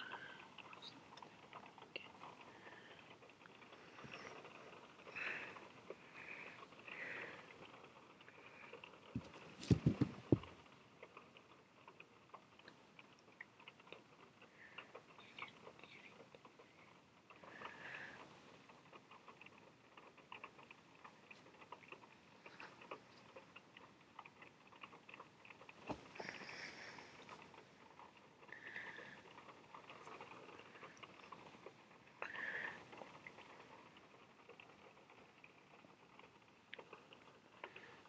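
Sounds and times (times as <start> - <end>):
light taps clicks and rustles: 7.5 - 38.0
dull thumps: 9.2 - 10.5.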